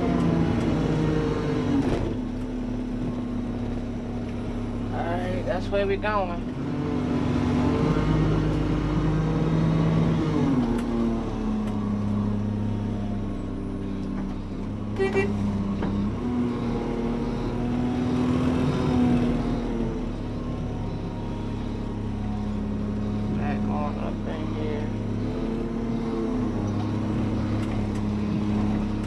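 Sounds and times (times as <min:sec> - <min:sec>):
truck engine accelerating: 0:00.0 - 0:29.0.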